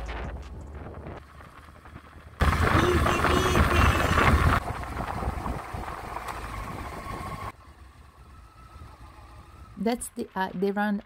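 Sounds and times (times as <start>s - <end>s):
wind noise on microphone: 0.0s - 7.5s
motorcycle engine rumble: 0.0s - 11.0s.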